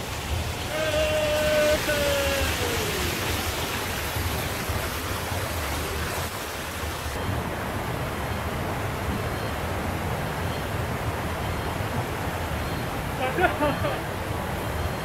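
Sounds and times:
water rushing over a weir: 0.0s - 15.0s
man calling: 0.6s - 3.8s, 13.1s - 14.1s.

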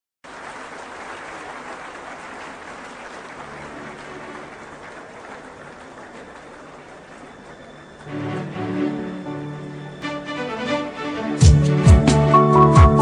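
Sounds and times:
crowd applauding: 0.2s - 10.2s.

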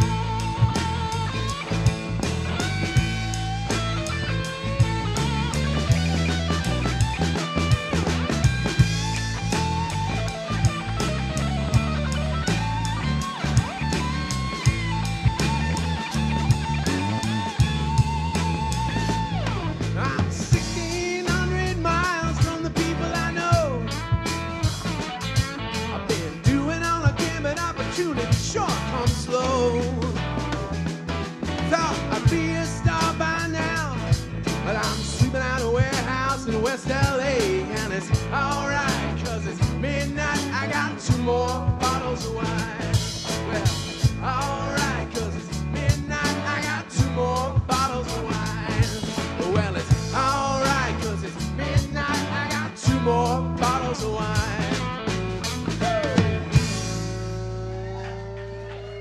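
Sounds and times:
lead guitar bending: 0.0s - 59.0s
live rock band playing: 0.0s - 59.0s
person singing: 20.0s - 24.1s, 26.1s - 30.3s, 31.6s - 55.0s, 55.7s - 59.0s.

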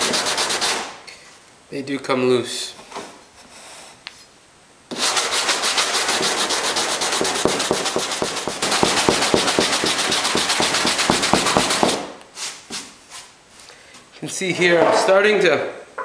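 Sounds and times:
sandpaper rasping on fiberglass: 0.0s - 0.9s, 4.9s - 12.6s.

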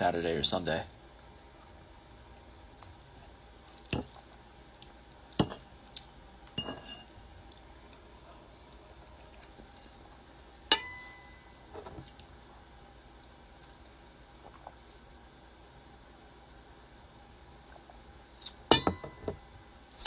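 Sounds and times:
cutlery and glassware clinking: 6.6s - 7.1s, 10.7s - 11.4s, 18.7s - 19.4s.

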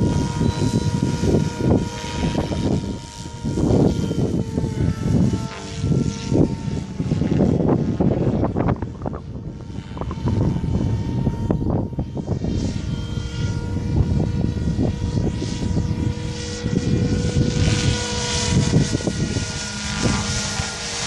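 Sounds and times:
rc helicopter motor whine: 0.0s - 21.0s
wind buffeting microphone: 0.0s - 21.0s.

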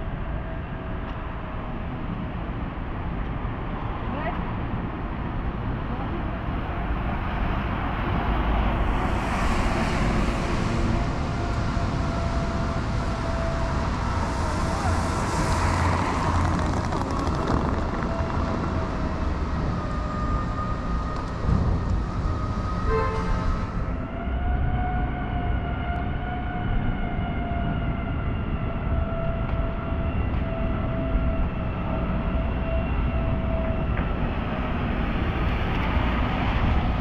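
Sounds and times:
traffic engine rumble: 0.0s - 37.0s
tyres hissing on wet road: 8.5s - 12.1s.

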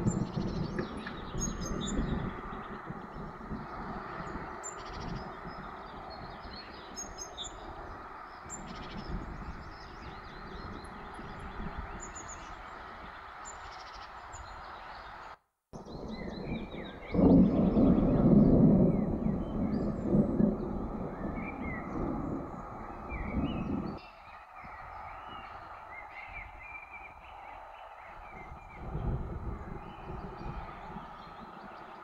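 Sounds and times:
birds chirping and calling: 0.0s - 18.2s, 29.6s - 32.0s.

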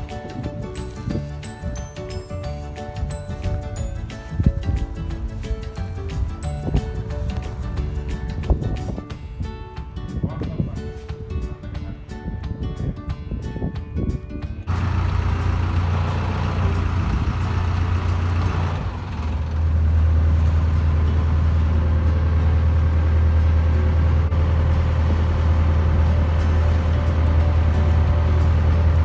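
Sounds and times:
boat engine drone: 14.7s - 29.0s.

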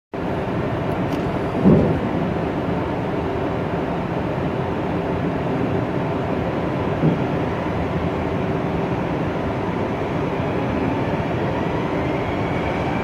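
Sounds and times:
electric train humming: 0.2s - 13.0s
short thump: 1.6s - 2.0s, 7.0s - 7.3s.

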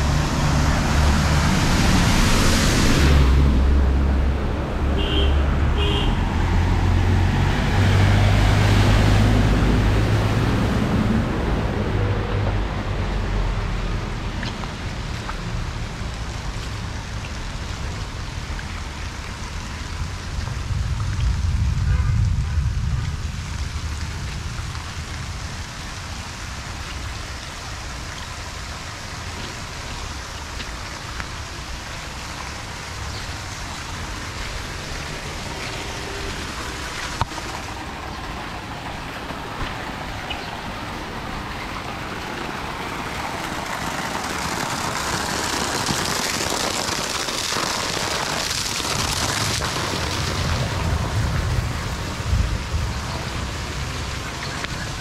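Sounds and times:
heavy rain on a road: 0.0s - 55.0s
water pouring from a drainpipe: 0.0s - 55.0s
rain pattering on an umbrella: 13.6s - 55.0s.

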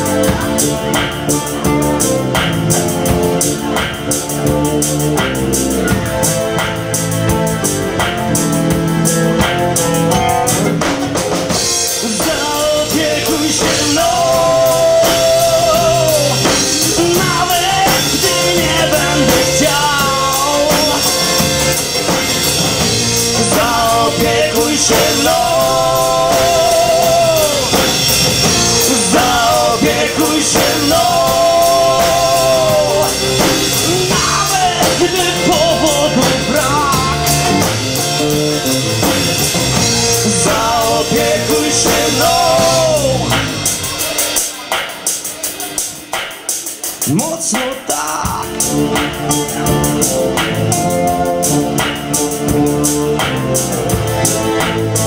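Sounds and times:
bass guitar: 0.0s - 55.0s
drum kit: 0.0s - 55.0s
man singing: 11.8s - 21.8s, 23.1s - 39.2s, 39.8s - 44.6s, 46.8s - 49.9s.

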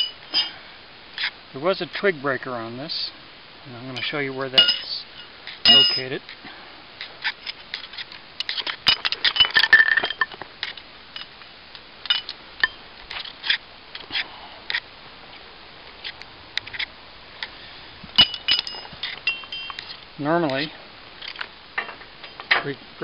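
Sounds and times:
small metal objects clinking: 4.6s - 6.2s, 7.8s - 11.3s, 18.2s - 20.0s.

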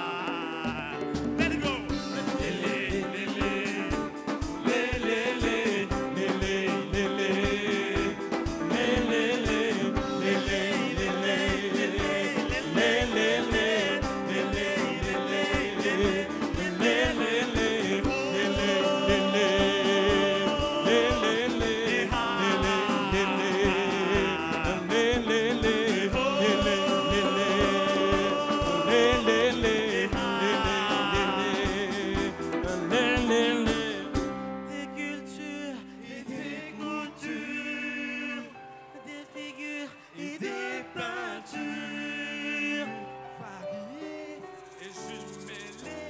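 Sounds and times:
live band playing: 0.0s - 46.0s
person singing: 0.0s - 46.0s
steady drum beat: 0.4s - 34.4s.

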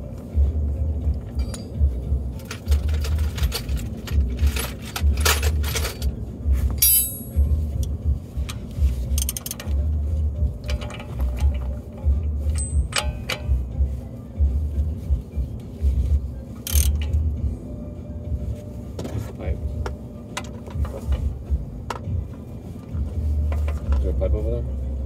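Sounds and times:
low uneven rumble: 0.0s - 25.0s
metal hand tools clinking: 1.4s - 1.8s, 2.4s - 6.1s, 6.8s - 7.5s, 9.1s - 9.8s, 12.5s - 13.6s
ringing metal clink: 6.8s - 7.4s, 12.5s - 13.5s.

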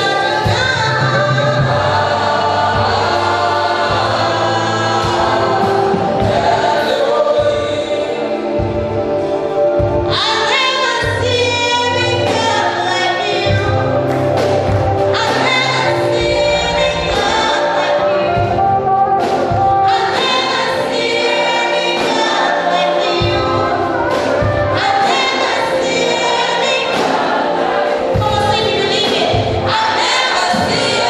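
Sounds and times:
woman singing into a microphone: 0.0s - 4.0s, 10.1s - 14.1s, 15.1s - 18.5s, 28.1s - 31.0s
choir backing singers: 0.0s - 31.0s
instrumental accompaniment low notes: 0.0s - 31.0s.

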